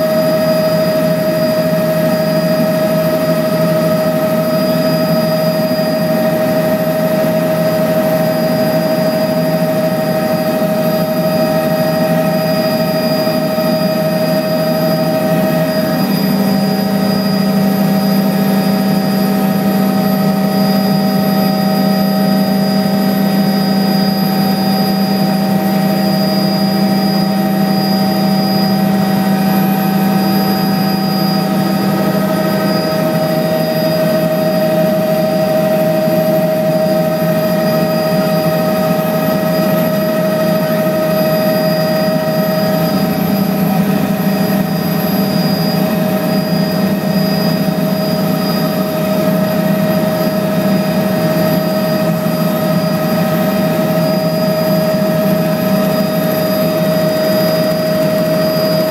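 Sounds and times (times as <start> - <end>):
small aircraft engine drone: 0.0 - 58.9.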